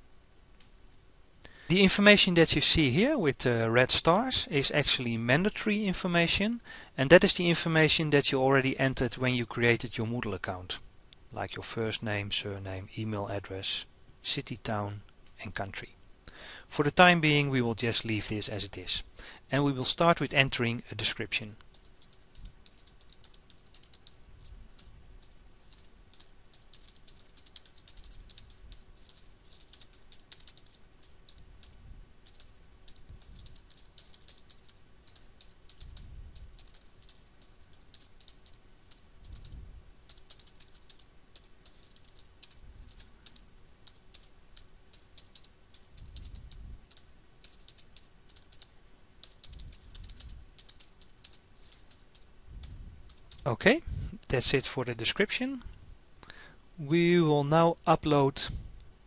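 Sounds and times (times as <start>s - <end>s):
keyboard typing: 21.6s - 53.5s.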